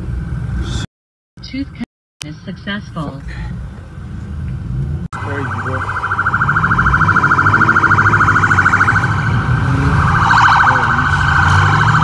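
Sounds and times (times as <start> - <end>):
car engines running: 0.0 - 12.0
police siren warbling: 5.2 - 12.0.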